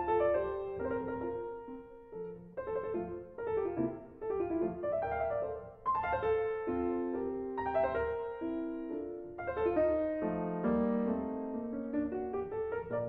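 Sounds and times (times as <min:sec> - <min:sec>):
solo piano music: 0:00.0 - 0:13.0.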